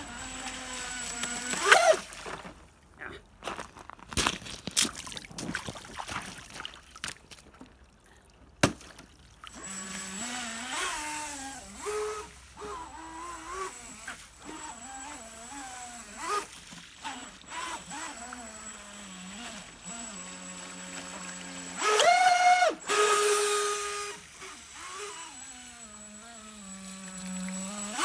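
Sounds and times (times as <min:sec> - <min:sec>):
boat engine revving: 0:09.6 - 0:28.0.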